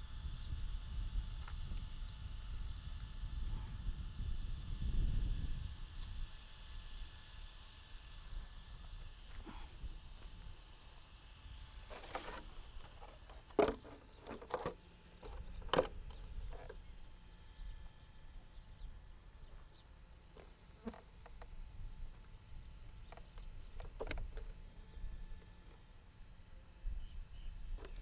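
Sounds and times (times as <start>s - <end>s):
wind rumble on microphone: 0.0s - 10.7s.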